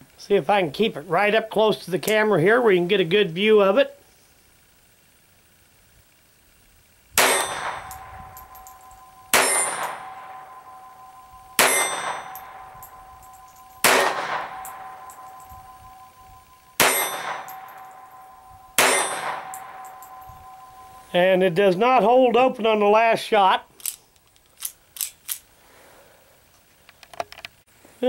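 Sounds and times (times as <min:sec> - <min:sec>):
pistol shots: 0:07.2 - 0:20.8
lingering metallic ring: 0:07.2 - 0:22.4.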